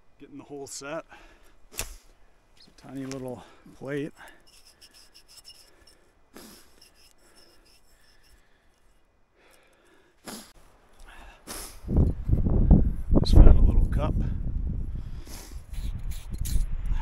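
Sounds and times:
fingers scraping dirt off plate: 1.7s - 9.0s, 15.7s - 16.7s.

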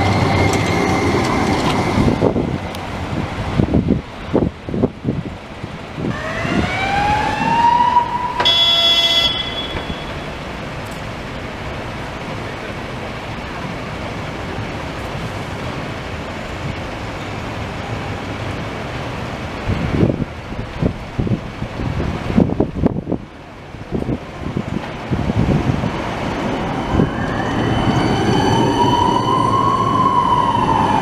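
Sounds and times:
city traffic rumble: 0.0s - 31.0s
short horn-like tone: 8.2s - 10.5s.

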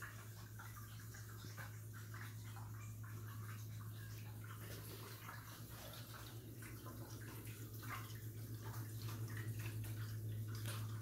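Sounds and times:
fountain water splashing into basin: 0.0s - 11.0s
steady low hum: 0.0s - 11.0s.

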